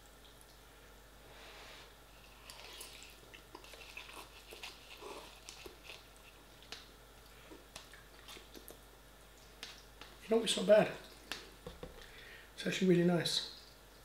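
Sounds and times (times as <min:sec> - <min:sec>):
person chewing noodles: 0:02.1 - 0:10.2.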